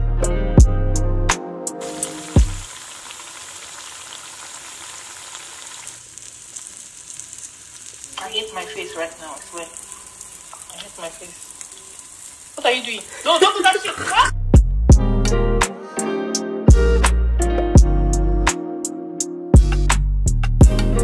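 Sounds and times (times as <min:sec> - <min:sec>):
food sizzling in a pan: 0:01.8 - 0:14.3.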